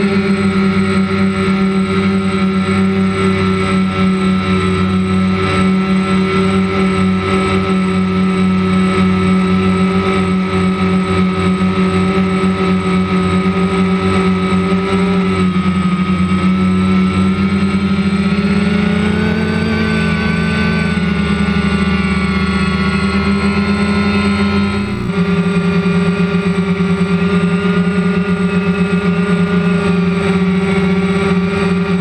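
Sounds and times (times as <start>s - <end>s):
drone propellers buzzing: 0.0s - 32.0s.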